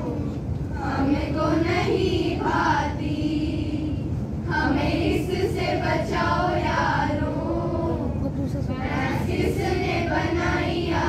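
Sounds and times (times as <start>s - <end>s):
girls singing in unison: 0.0s - 8.2s, 8.8s - 11.0s.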